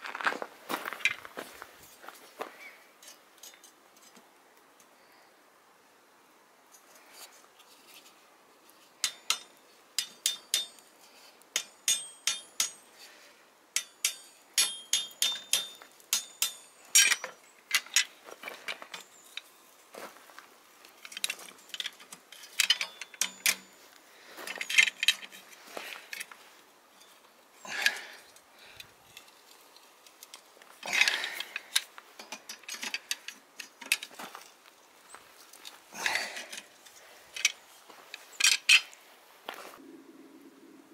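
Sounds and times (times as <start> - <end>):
metal clanks and scrapes: 3.0 - 4.2, 13.8 - 18.2, 21.0 - 23.8, 24.5 - 26.4, 29.1 - 34.6
hammer striking steel bar: 9.0 - 10.8, 11.6 - 12.9, 13.8 - 16.7.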